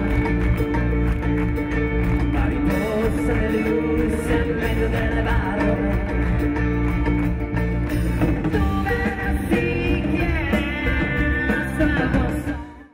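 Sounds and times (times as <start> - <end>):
man singing: 0.0 - 0.8, 2.2 - 6.8, 8.4 - 12.9
drum kit: 0.0 - 12.9
live band playing: 0.0 - 12.9.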